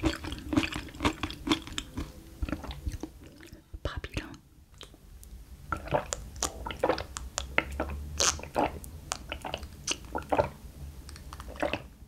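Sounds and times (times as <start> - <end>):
person gulping a drink: 0.0 - 3.6, 5.7 - 10.6, 11.2 - 11.9
wet mouth clicks: 5.8 - 10.5, 11.1 - 11.8.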